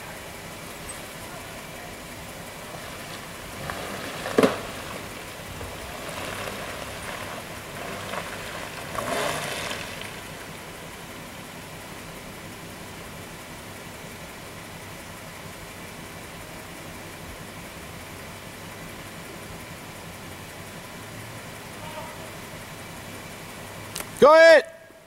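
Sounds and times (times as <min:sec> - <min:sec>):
faint engine note: 0:20.7 - 0:23.2.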